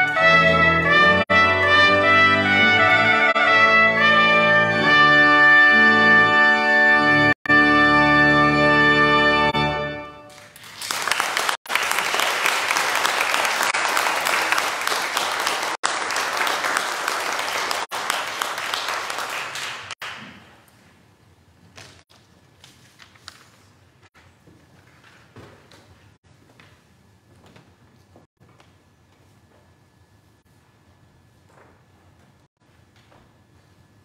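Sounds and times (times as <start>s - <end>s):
organ: 0.0s - 10.2s
trumpet: 0.0s - 10.3s
audience applause: 10.3s - 20.3s.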